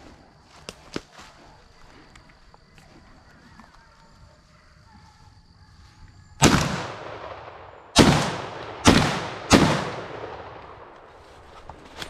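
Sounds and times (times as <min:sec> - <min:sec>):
shotgun shots: 0:06.4 - 0:11.0.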